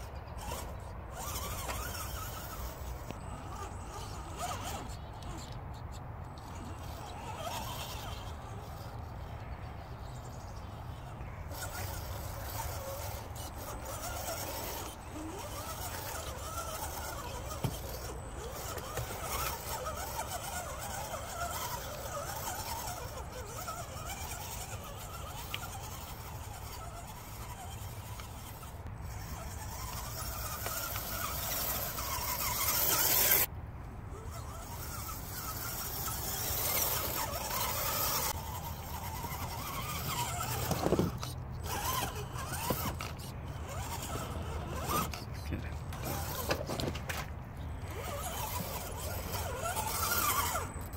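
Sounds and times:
toy car electric motor whining: 0.0s - 50.9s.

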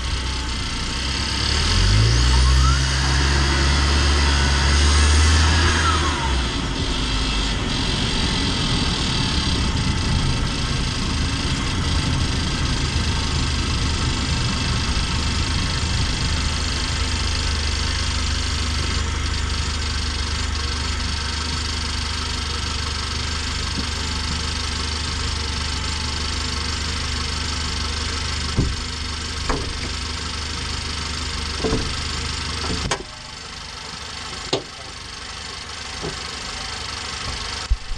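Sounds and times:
van engine idling: 0.0s - 37.9s
high engine whistle: 1.7s - 9.8s
sharp knocks: 28.6s - 28.8s.

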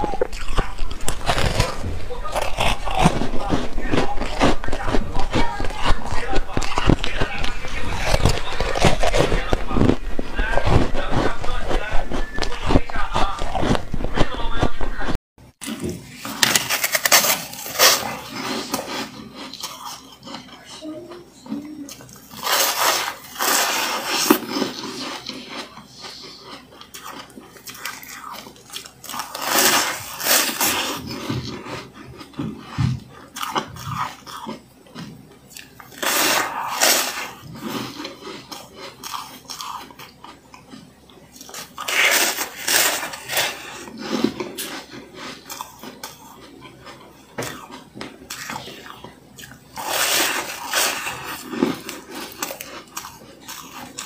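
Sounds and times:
chewing crunches: 0.0s - 15.0s, 15.6s - 54.0s
ice being crunched: 22.4s - 24.7s, 29.0s - 31.0s, 41.8s - 43.8s.

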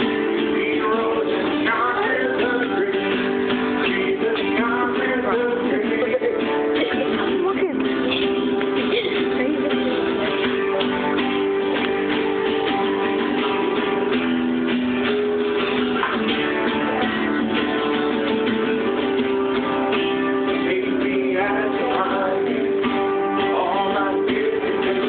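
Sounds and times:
man singing: 0.0s - 8.1s, 18.8s - 25.0s
acoustic guitar strumming: 0.0s - 25.0s.

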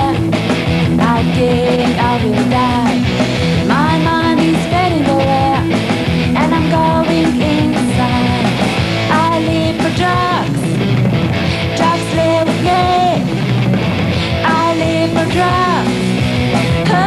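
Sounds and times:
woman singing: 0.0s - 0.2s, 1.0s - 10.6s, 11.8s - 13.3s, 14.4s - 16.0s, 16.6s - 17.0s
drums and cymbals: 0.0s - 17.0s
electric guitar: 0.0s - 17.0s.

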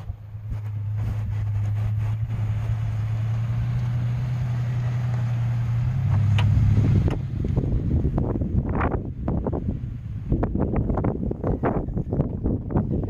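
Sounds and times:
pickup truck engine running: 0.0s - 13.0s
wind: 0.0s - 13.0s
rustling: 0.4s - 4.1s.

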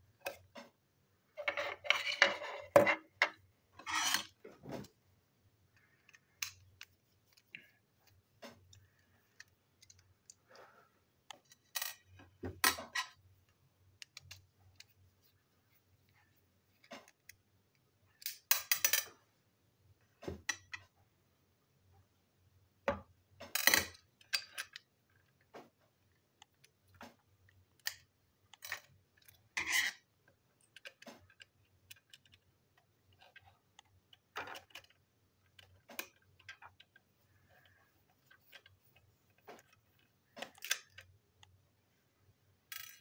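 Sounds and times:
plastic parts clicking and scraping: 0.1s - 5.0s, 5.7s - 19.2s, 23.4s - 41.7s, 42.7s - 43.0s.

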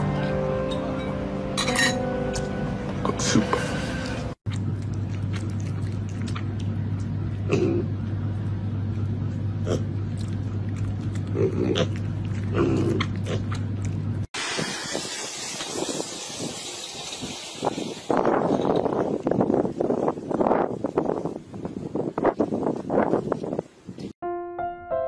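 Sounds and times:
low hum: 0.0s - 14.3s
piglets grunting: 11.2s - 13.5s
wind noise on microphone: 14.4s - 24.2s.

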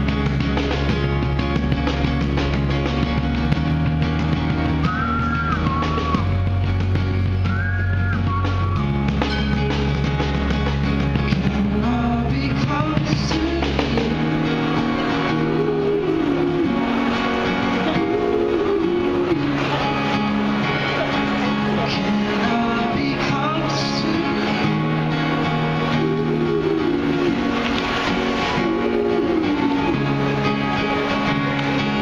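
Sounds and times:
acoustic guitar strumming: 0.0s - 32.0s
drums: 0.0s - 32.0s
person singing: 11.3s - 27.9s, 28.6s - 32.0s.

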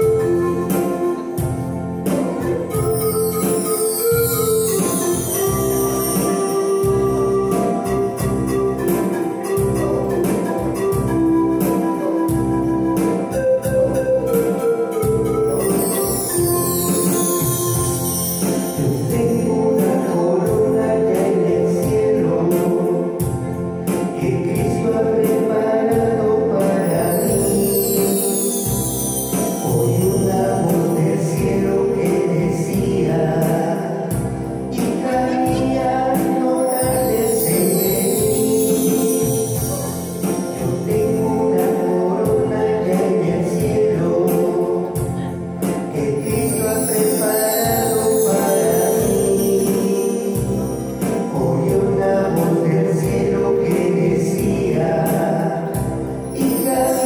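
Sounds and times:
instrumental accompaniment with beat: 0.0s - 57.0s.

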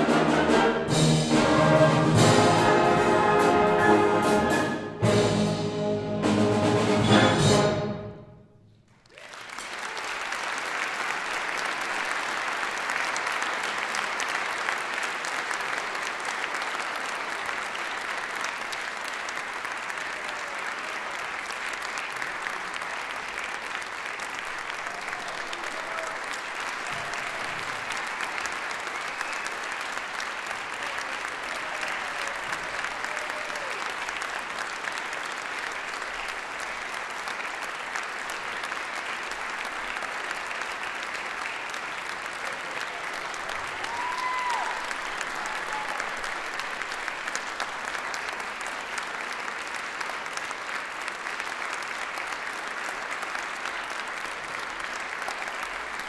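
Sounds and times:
audience applause: 8.9s - 56.0s
faint audience calls: 19.6s - 34.4s, 39.0s - 47.2s.

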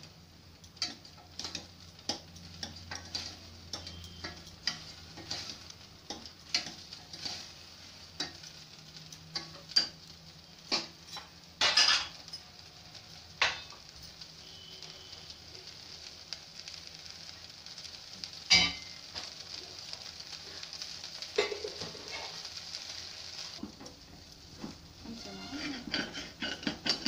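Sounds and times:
faint sizzle: 0.0s - 27.0s
spoon scraping metal pot: 25.1s - 27.0s.

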